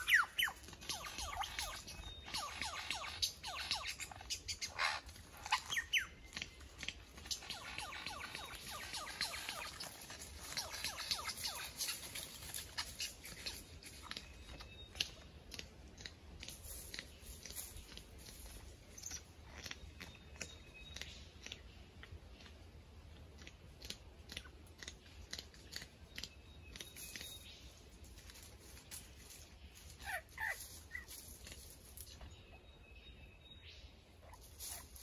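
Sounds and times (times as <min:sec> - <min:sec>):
bird scratching through dry leaves: 0:00.0 - 0:14.8, 0:16.4 - 0:19.7, 0:26.8 - 0:32.2, 0:34.3 - 0:35.0.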